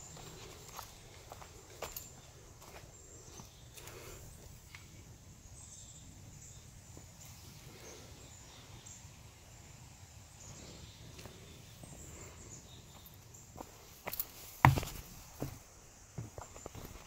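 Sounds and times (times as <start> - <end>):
footsteps on a trail: 0.0 - 4.6, 12.9 - 17.0.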